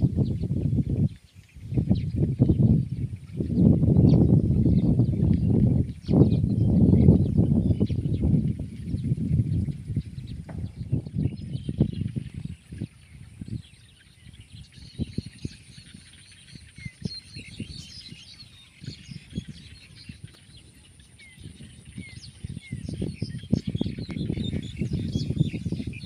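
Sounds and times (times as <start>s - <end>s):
small birds chirping: 0.0s - 26.0s
low thumps and rumbling: 1.9s - 13.6s.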